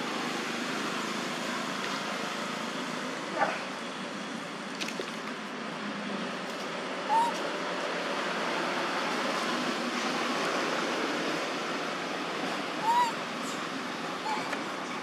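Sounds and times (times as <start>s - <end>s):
macaque squeaky calls: 7.1s - 7.4s, 12.8s - 13.6s, 14.2s - 15.0s.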